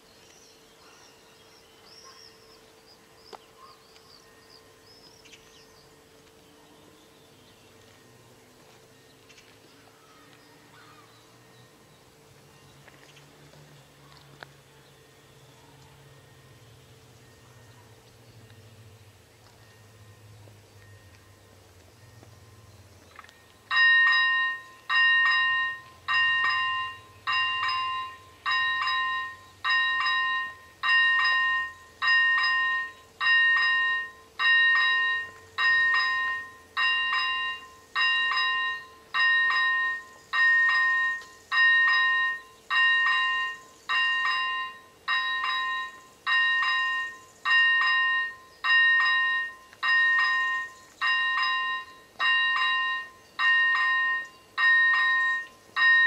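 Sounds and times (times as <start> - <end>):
electronic crossing bell dinging: 19.4 - 56.0.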